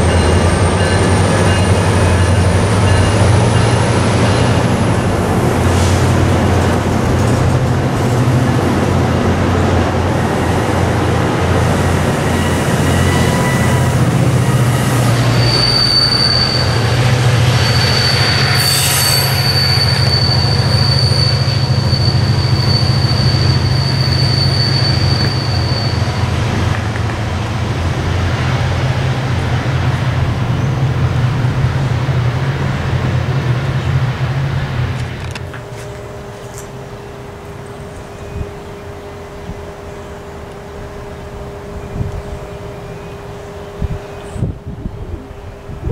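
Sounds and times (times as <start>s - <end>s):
train wheel squeal: 0.0s - 4.7s, 11.5s - 26.8s
train running on rails: 0.0s - 45.9s
wind rumble on microphone: 43.7s - 45.9s.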